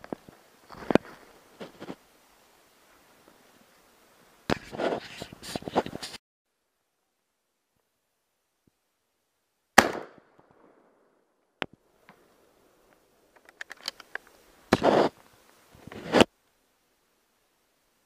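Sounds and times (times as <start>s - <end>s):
handling rustling noise: 0.0s - 2.1s, 4.5s - 6.2s, 12.9s - 16.3s
shotgun shot: 9.8s - 10.8s.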